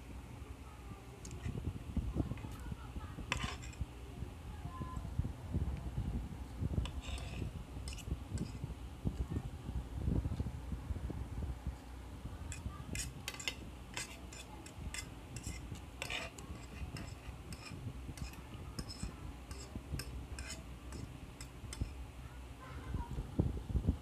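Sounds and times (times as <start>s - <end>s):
cutlery scraping a plate: 1.2s - 1.5s, 3.3s - 3.8s, 6.8s - 8.6s, 12.5s - 22.0s.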